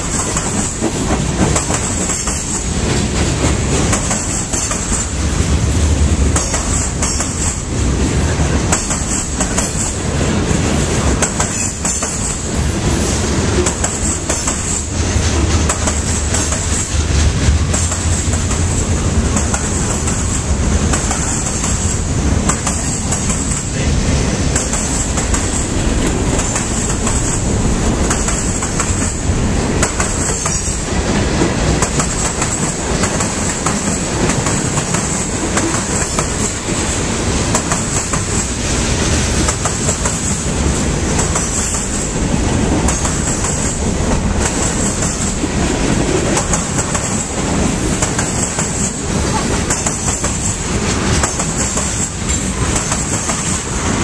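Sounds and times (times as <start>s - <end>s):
wheels clicking over rail joints: 0.0s - 8.0s, 8.6s - 10.0s, 11.1s - 12.6s, 13.5s - 23.9s, 24.5s - 54.0s
train wheels rumbling on rail: 0.0s - 54.0s.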